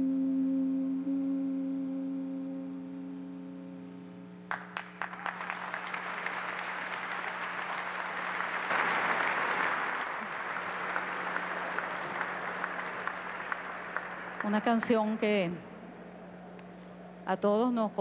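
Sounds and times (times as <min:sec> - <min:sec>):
steady held tone: 0:00.0 - 0:04.5, 0:10.2 - 0:18.0
crowd applause: 0:04.5 - 0:15.7.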